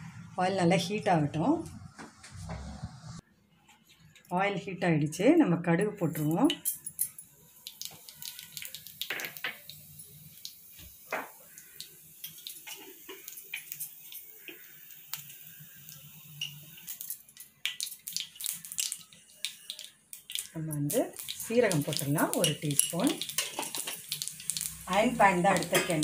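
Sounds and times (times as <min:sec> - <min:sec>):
oil sizzling: 0:06.2 - 0:26.0
seeds popping in hot oil: 0:07.6 - 0:26.0.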